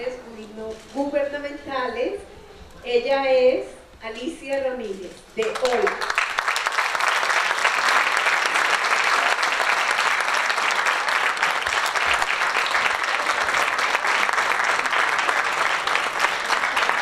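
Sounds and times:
crowd clapping: 0:05.4 - 0:17.0.

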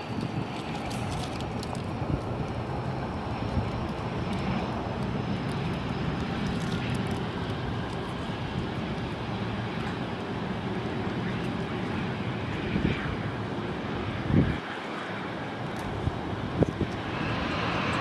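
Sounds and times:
jet engines rushing: 0:00.0 - 0:18.0.

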